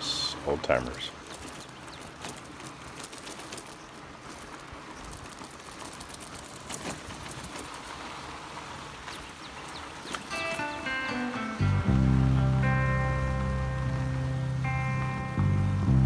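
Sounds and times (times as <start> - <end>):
tyres rolling on dirt: 0.0 - 14.8
bike rattling and clicking: 0.7 - 11.0.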